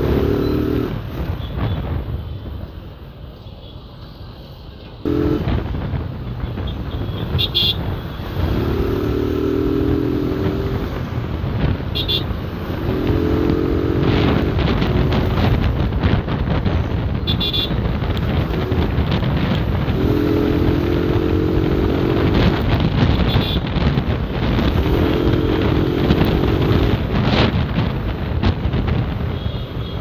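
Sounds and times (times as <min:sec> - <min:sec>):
vehicle horn blasts: 0:05.1 - 0:05.6, 0:06.7 - 0:08.1, 0:11.9 - 0:12.4, 0:17.2 - 0:17.8, 0:19.9 - 0:21.4, 0:23.1 - 0:23.7, 0:29.3 - 0:30.0
motorcycle engine running: 0:05.1 - 0:05.9, 0:08.0 - 0:29.5
wind rushing on microphone: 0:05.1 - 0:30.0.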